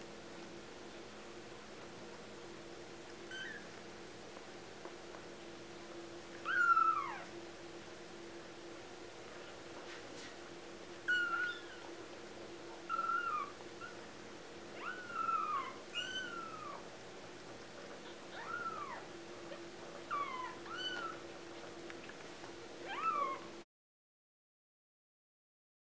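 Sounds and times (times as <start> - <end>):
kittens mewing: 6.4 - 7.3, 11.1 - 11.9, 12.8 - 14.0, 14.8 - 16.9, 18.1 - 21.3, 22.8 - 23.5.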